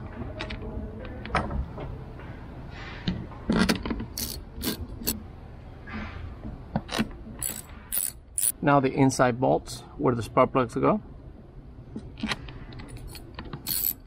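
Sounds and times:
socket ratchet clicking: 0:03.6 - 0:05.2, 0:06.9 - 0:08.6, 0:12.2 - 0:14.0.

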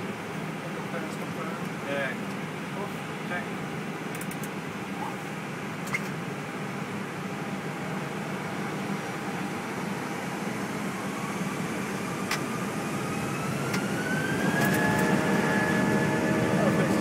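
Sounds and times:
jet engines spooling up: 0:08.5 - 0:17.0.

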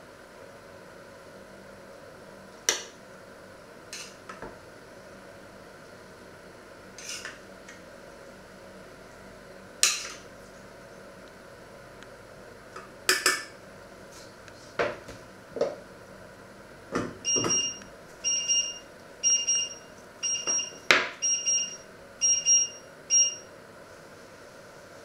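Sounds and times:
high two-tone electronic beep: 0:17.3 - 0:23.4.

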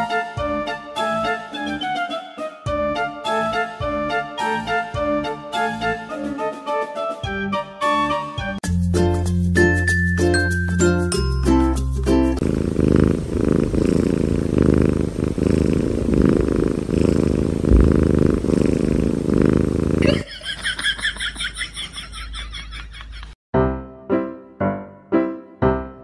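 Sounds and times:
kitten purring: 0:12.4 - 0:20.2.

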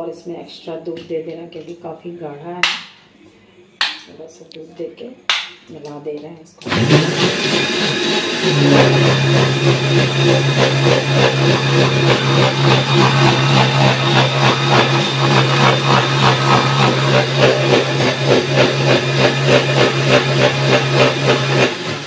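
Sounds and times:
mixer grinder motor hum: 0:06.6 - 0:22.0.

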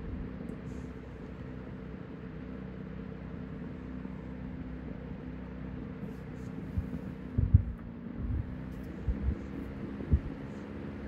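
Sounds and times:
fan motor hum: 0:00.0 - 0:11.0
low thumps: 0:06.8 - 0:09.5.

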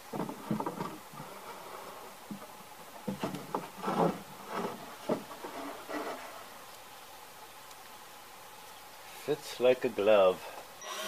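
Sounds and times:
light wooden knocks and clatters: 0:00.0 - 0:06.5
wood sliding against wood: 0:00.1 - 0:06.6.

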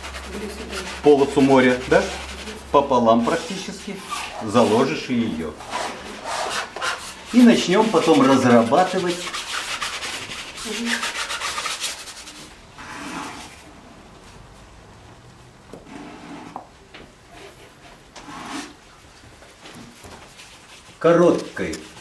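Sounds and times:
paint brushed on canvas: 0:00.0 - 0:05.1, 0:05.7 - 0:13.5, 0:20.0 - 0:22.0.

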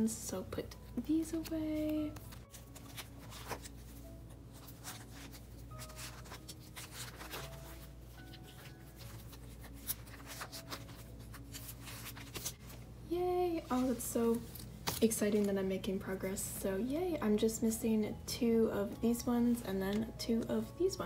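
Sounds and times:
cards rustling in plastic sleeves: 0:00.8 - 0:12.9, 0:13.5 - 0:15.6.

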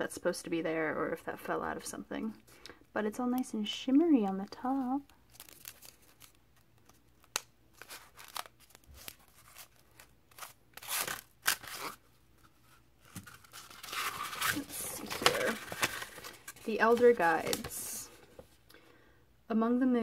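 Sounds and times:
paper rustling and crinkling: 0:04.6 - 0:18.6.

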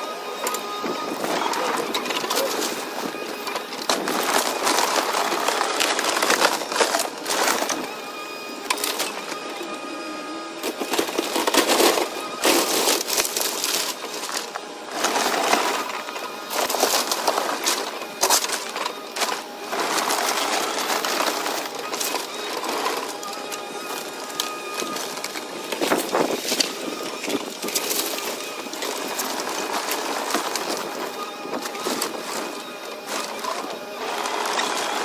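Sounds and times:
excavator engine humming: 0:00.0 - 0:35.0
timber cracking and splintering: 0:10.7 - 0:35.0.

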